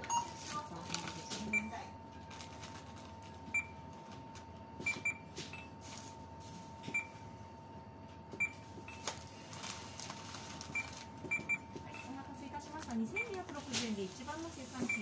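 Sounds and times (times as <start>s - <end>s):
barcode scanner beeping: 0.0s - 0.6s, 1.2s - 1.8s, 8.4s - 9.3s, 10.7s - 13.7s, 14.7s - 15.0s.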